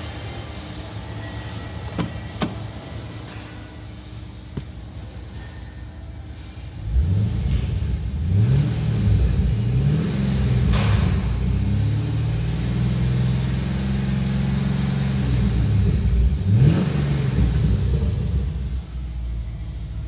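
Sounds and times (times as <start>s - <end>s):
car engine revving: 6.8s - 20.0s.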